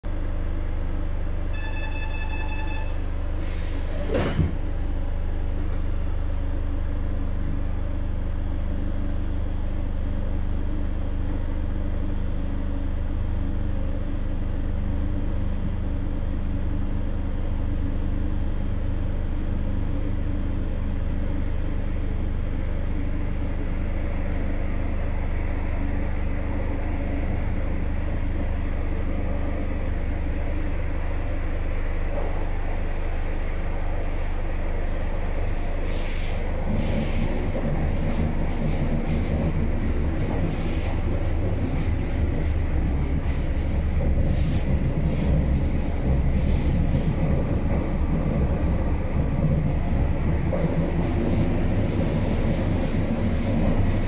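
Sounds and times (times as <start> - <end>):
train rumble on track: 0.0 - 54.0
electronic warning tone: 1.5 - 3.1.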